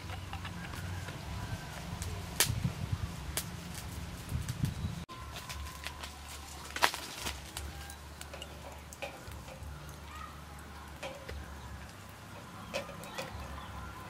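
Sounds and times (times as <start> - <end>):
metal cans clicking on wire grill: 5.3 - 14.0.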